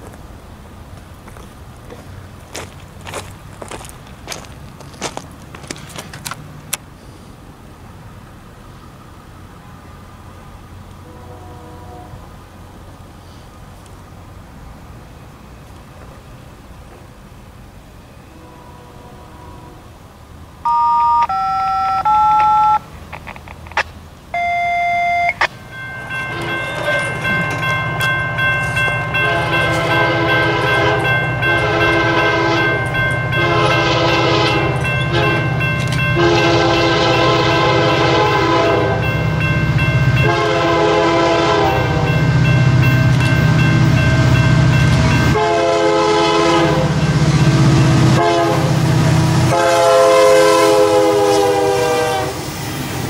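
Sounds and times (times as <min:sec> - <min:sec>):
diesel engine rumble: 0:00.0 - 0:11.1
locomotive air horn blasts: 0:11.0 - 0:12.3, 0:18.2 - 0:20.0, 0:28.3 - 0:39.2, 0:40.0 - 0:42.5, 0:43.9 - 0:52.5
short steady pitched tones: 0:20.6 - 0:22.9.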